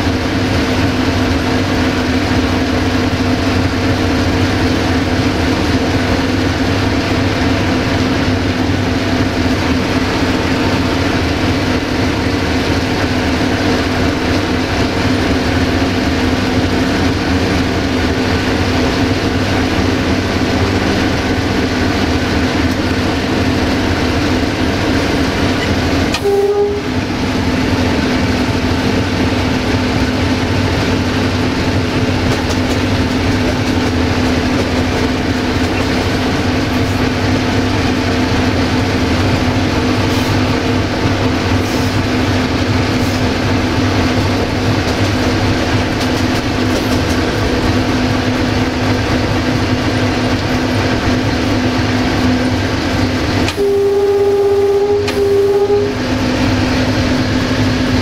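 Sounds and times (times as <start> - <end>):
diesel engine humming: 0.0 - 58.0
wheels rumbling on track: 0.0 - 58.0
short tone: 26.1 - 27.0, 53.5 - 56.0.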